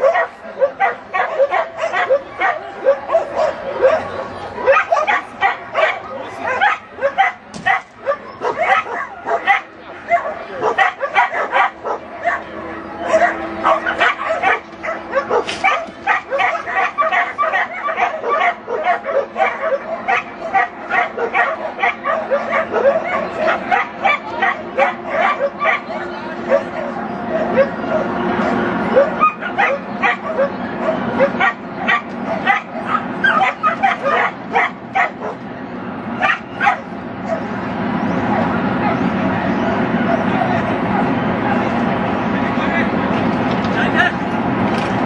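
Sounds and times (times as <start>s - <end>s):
dog barking: 0.0s - 35.4s, 36.2s - 37.5s
small dog yapping: 29.0s - 35.4s.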